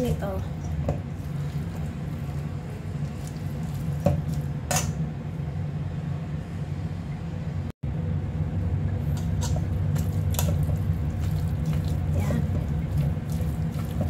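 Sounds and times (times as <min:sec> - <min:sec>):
steady low hum: 0:00.0 - 0:14.0
wet squishing of food tossed: 0:00.8 - 0:04.6, 0:09.4 - 0:14.0
spatula scraping bowl: 0:09.1 - 0:14.0.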